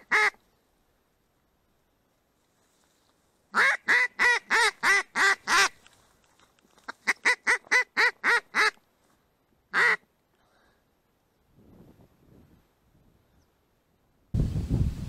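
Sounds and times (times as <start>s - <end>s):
duck quacking: 0.0s - 0.4s, 3.5s - 5.8s, 6.9s - 8.8s, 9.7s - 10.0s.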